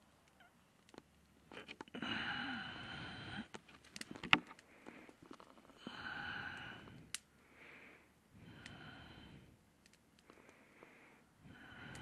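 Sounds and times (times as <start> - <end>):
person breathing heavily: 2.0 - 3.6, 5.8 - 9.6, 10.2 - 12.0.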